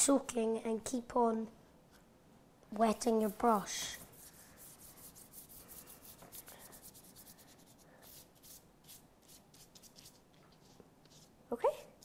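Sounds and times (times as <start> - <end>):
wet paintbrush strokes on paper: 2.9 - 12.0.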